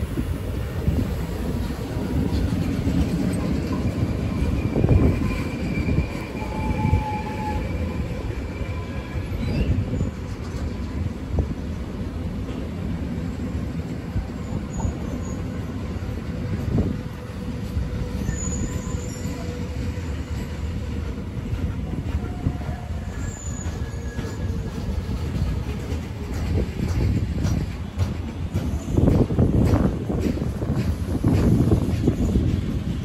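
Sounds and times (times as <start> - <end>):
train wheels rumbling on rail: 0.0 - 33.0
wheels squealing: 3.0 - 10.9, 17.7 - 21.0, 22.1 - 25.9.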